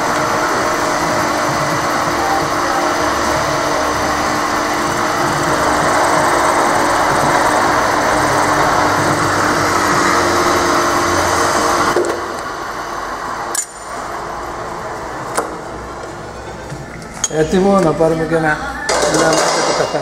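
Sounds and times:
drill press motor running: 0:00.0 - 0:13.4.

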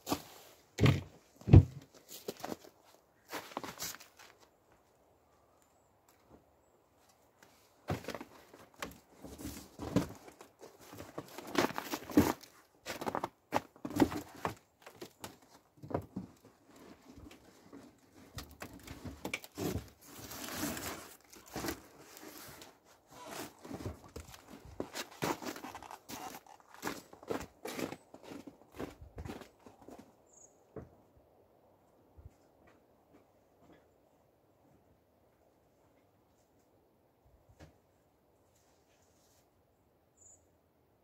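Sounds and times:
footsteps in snow: 0:01.9 - 0:04.5, 0:19.6 - 0:30.5
shopping bags and box rustling: 0:18.8 - 0:27.0.

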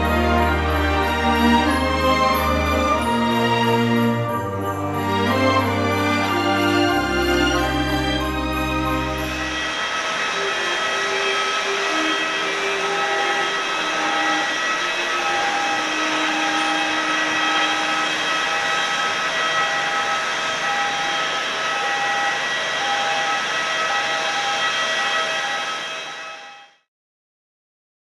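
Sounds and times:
jet turbine whine: 0:04.9 - 0:26.8.

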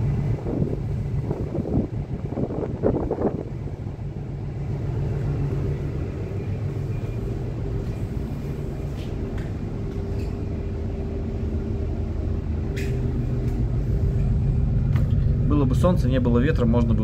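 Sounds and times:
wind rumbling on microphone: 0:00.0 - 0:06.3
diesel engine droning: 0:00.0 - 0:17.0.

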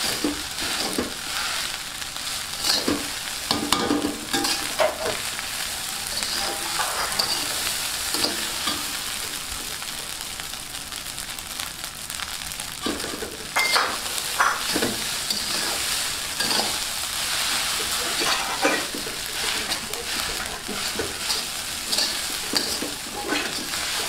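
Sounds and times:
spatula scraping and knocking pan: 0:00.0 - 0:01.6, 0:02.6 - 0:05.2, 0:06.1 - 0:08.8, 0:12.8 - 0:24.0
food sizzling in a pan: 0:00.0 - 0:24.0.

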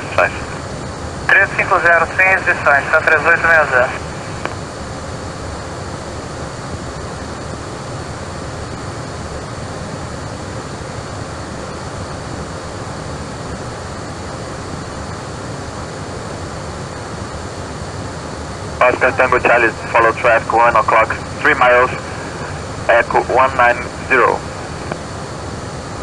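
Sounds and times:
radio rushing hiss: 0:00.0 - 0:04.9, 0:18.1 - 0:26.0
faint steady tones: 0:10.7 - 0:26.0.

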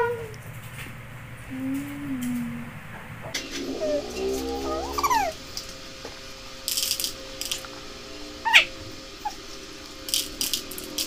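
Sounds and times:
high-pitched mewing cries: 0:03.5 - 0:05.4.

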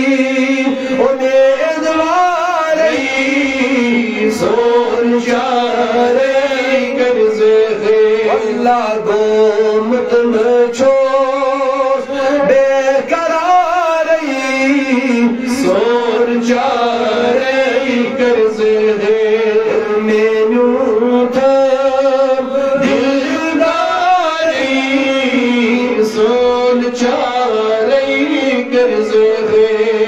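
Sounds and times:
man chanting melodically: 0:00.0 - 0:30.0.

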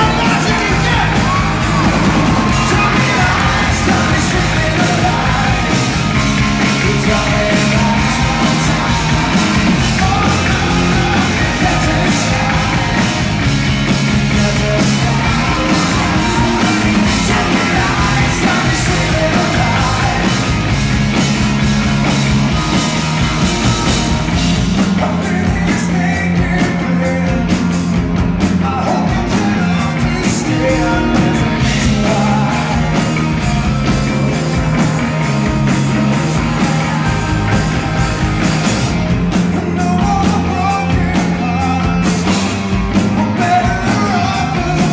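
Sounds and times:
man singing into microphone: 0:00.0 - 0:05.7, 0:06.8 - 0:13.2, 0:14.3 - 0:20.4, 0:25.0 - 0:27.5, 0:28.6 - 0:33.0, 0:39.6 - 0:42.3, 0:43.2 - 0:44.9
live rock band playing: 0:00.0 - 0:44.9.

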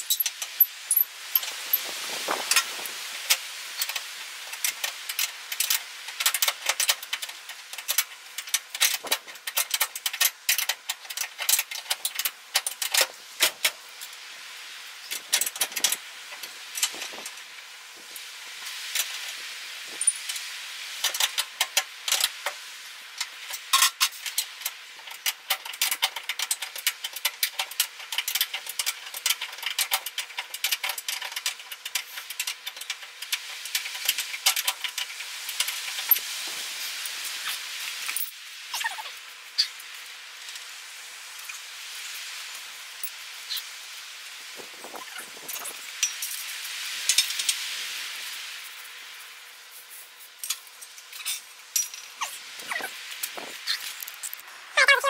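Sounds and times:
metal tools clinking on steel: 0:00.0 - 0:01.8, 0:50.4 - 0:52.9.

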